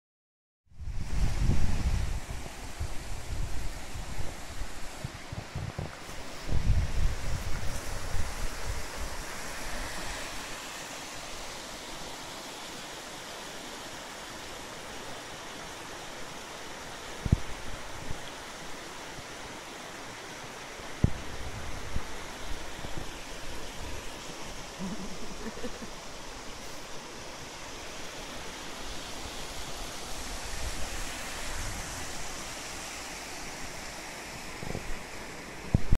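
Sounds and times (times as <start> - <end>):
river rapids rushing over stones: 2.0 - 36.0.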